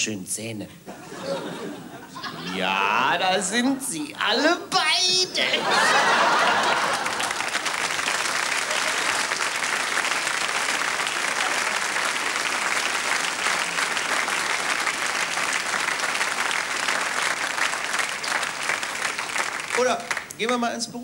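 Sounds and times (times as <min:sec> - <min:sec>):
audience applauding: 0:05.4 - 0:20.7.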